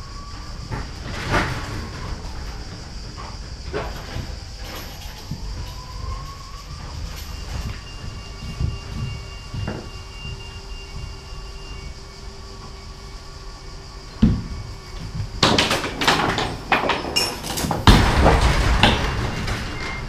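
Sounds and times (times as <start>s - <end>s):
metal rattling and scraping on wood: 0.6s - 11.6s, 14.2s - 20.0s
thump: 14.2s - 14.5s, 17.9s - 19.7s.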